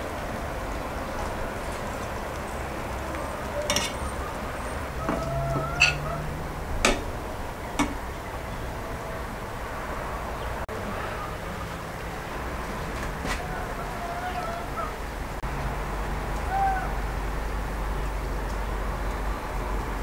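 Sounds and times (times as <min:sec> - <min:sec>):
metal spatula clinking: 0:03.7 - 0:04.0, 0:05.8 - 0:06.1.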